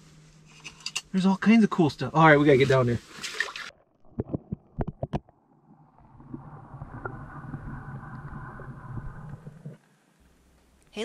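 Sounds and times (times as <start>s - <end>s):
muffled underwater rushing hum: 4.0s - 10.4s.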